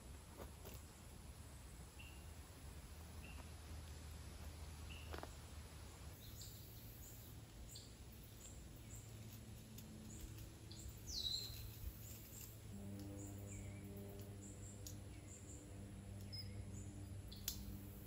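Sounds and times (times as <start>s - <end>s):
low steady hum: 0.0s - 18.0s
bird chirping: 1.9s - 2.4s, 4.8s - 18.0s.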